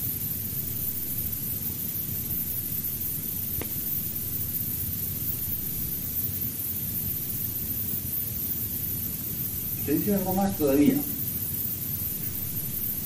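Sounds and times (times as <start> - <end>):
background hiss: 0.0 - 13.0
faint tick: 3.6 - 3.8.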